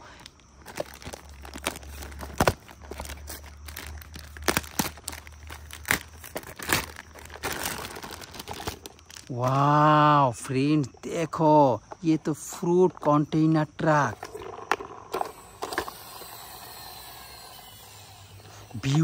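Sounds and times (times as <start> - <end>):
plastic bag crinkling: 0.1 - 9.7.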